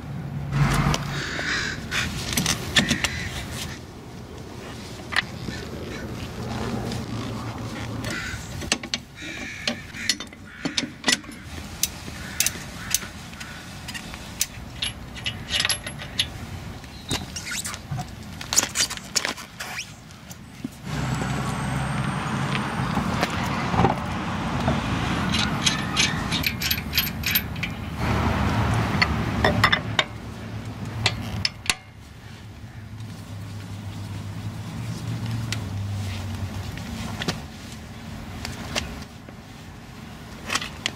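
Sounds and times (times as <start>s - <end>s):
steady low rumble: 0.0s - 8.7s
lug wrench clinking on wheel: 13.9s - 16.4s, 25.2s - 28.0s, 29.0s - 30.2s, 30.8s - 32.0s.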